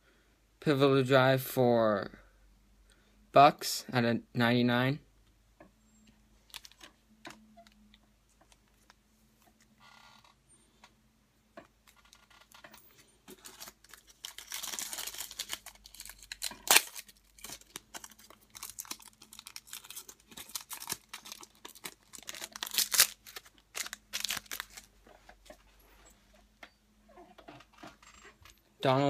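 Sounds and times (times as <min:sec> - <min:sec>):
foil wrapper crinkling and tearing: 0:13.3 - 0:24.9.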